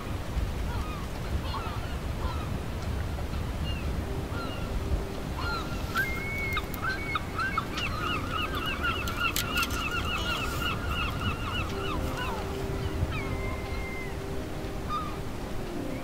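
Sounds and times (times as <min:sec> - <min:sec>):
low rumble of wind and sea: 0:00.0 - 0:16.0
bird calling in sharp notes: 0:05.4 - 0:15.3.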